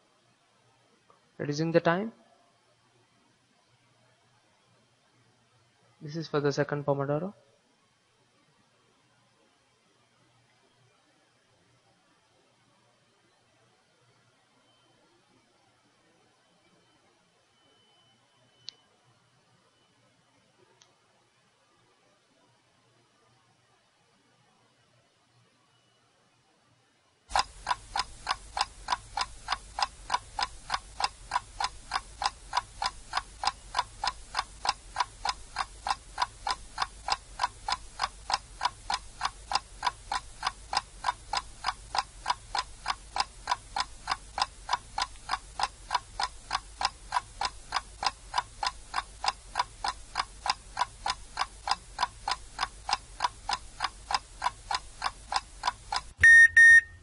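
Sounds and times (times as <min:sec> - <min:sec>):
timer ticking: 0:27.3 - 0:57.0.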